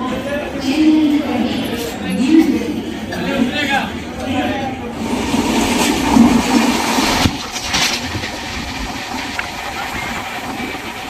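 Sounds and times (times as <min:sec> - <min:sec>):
train wheels on rails: 0:04.9 - 0:11.0.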